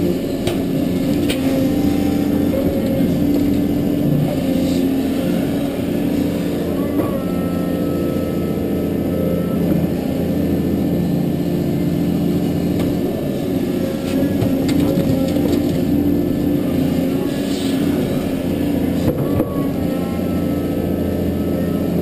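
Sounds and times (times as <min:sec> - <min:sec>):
diesel engine running under load: 0:00.0 - 0:22.0
hydraulic whine: 0:00.0 - 0:22.0.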